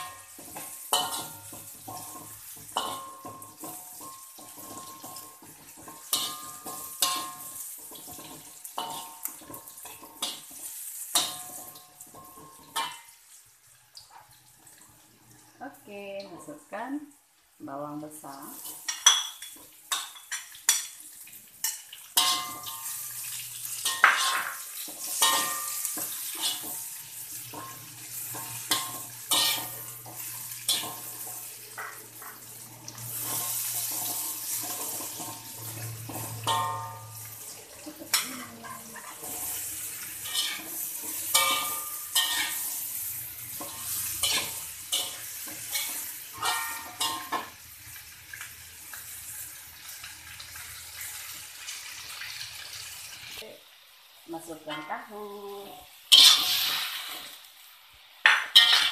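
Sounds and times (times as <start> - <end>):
metal spatula scraping wok: 0.0 - 13.1, 21.6 - 31.6, 32.2 - 48.0, 55.7 - 57.5, 58.4 - 58.9
hot oil sizzling: 0.0 - 58.9.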